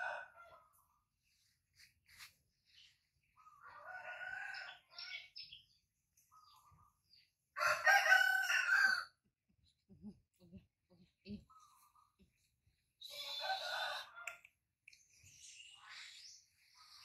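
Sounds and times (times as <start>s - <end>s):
rooster crowing: 3.7s - 4.8s, 7.6s - 9.2s, 13.2s - 14.3s.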